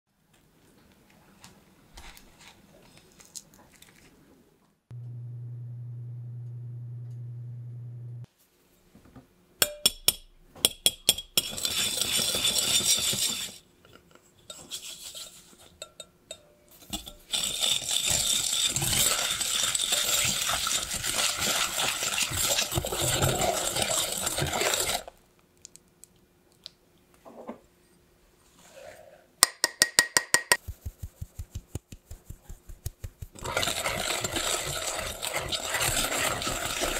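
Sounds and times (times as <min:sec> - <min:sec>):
brief low hum: 0:04.9 - 0:08.3
wire whisk scraping glass bowl: 0:11.4 - 0:13.6, 0:16.8 - 0:25.1, 0:33.4 - 0:36.9
clicks and scrapes: 0:16.8 - 0:25.8, 0:31.6 - 0:36.9.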